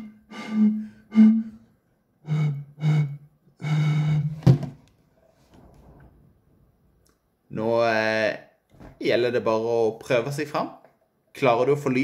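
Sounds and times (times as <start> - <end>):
hooting notes blown across bottles: 0.0 - 4.6.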